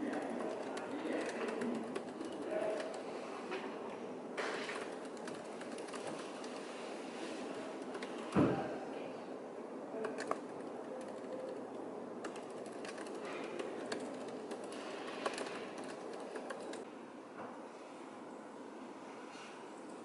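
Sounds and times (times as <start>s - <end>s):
laptop keyboard typing: 0.0s - 3.2s, 4.4s - 8.4s, 10.0s - 16.9s
room hum: 0.0s - 20.0s.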